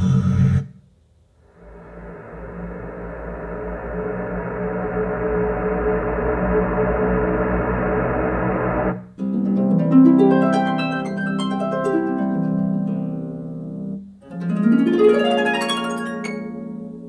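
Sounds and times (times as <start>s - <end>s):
rising harp glissando: 9.2s - 13.5s, 14.3s - 17.0s.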